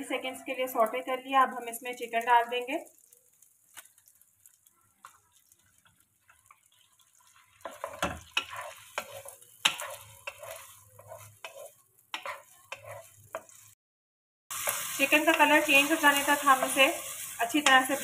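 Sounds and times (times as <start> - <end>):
chicken sizzling in butter: 0.1 - 13.8, 14.5 - 18.0
wooden spatula scraping a pan: 5.0 - 13.8.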